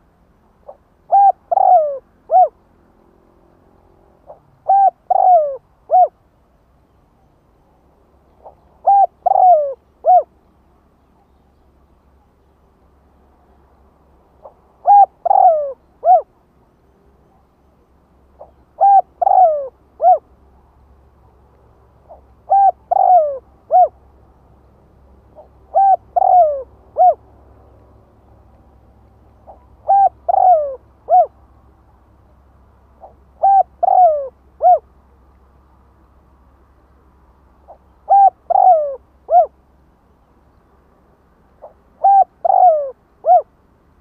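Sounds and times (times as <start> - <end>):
dove cooing: 0.6 - 2.6, 4.2 - 6.2, 8.4 - 10.3, 14.4 - 16.3, 18.4 - 20.3, 22.0 - 24.0, 25.3 - 27.2, 29.4 - 31.4, 33.0 - 34.9, 37.7 - 39.6, 41.6 - 43.5.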